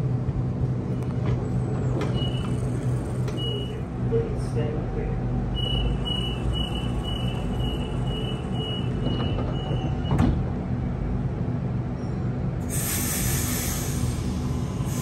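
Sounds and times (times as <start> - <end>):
train low hum: 0.0 - 15.0
door warning high beeps: 3.4 - 3.8, 5.6 - 10.2.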